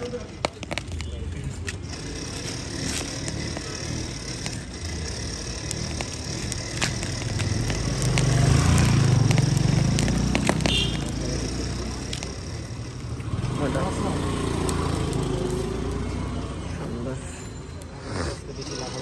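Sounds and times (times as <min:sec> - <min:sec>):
corn husks being torn: 0:00.4 - 0:12.9
vehicle passing: 0:01.6 - 0:19.0.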